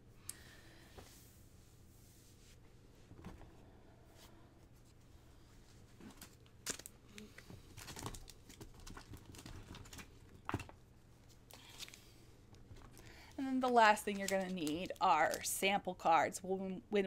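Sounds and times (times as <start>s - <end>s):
rustling of paper: 5.5s - 15.6s.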